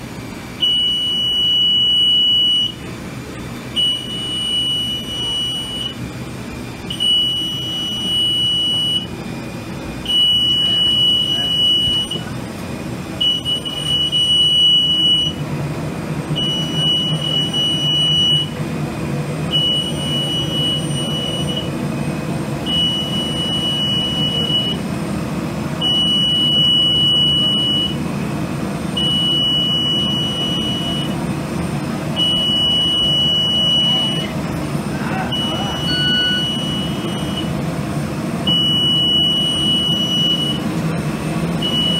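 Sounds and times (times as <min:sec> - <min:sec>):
high electronic beep: 0:00.6 - 0:02.8, 0:03.8 - 0:06.0, 0:06.8 - 0:09.1, 0:10.0 - 0:12.3, 0:13.2 - 0:15.4, 0:16.4 - 0:18.6, 0:19.5 - 0:21.7, 0:22.7 - 0:24.8, 0:25.8 - 0:28.0, 0:29.0 - 0:31.2, 0:32.2 - 0:34.4, 0:35.1 - 0:37.5, 0:38.5 - 0:40.6, 0:41.6 - 0:41.9.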